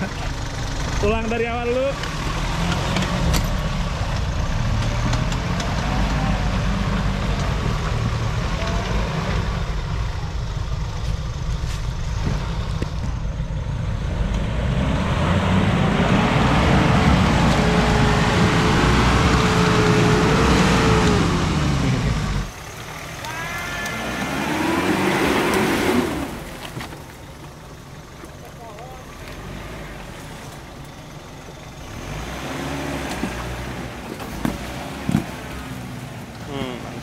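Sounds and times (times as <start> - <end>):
vehicle engine under load: 0.0 - 37.0.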